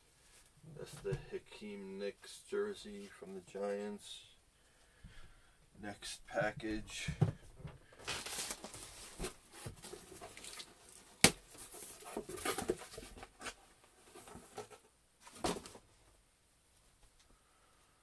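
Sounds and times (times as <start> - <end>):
packaging rustling and crinkling: 8.0 - 14.7.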